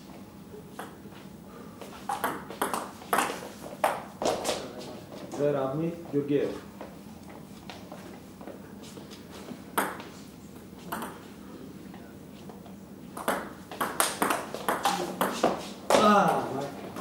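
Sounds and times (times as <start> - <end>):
table tennis ball clicking on paddles: 13.2 - 15.5.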